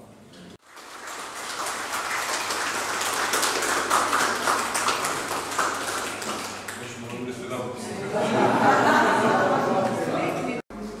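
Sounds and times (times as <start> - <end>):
audience applauding: 0.6 - 7.2.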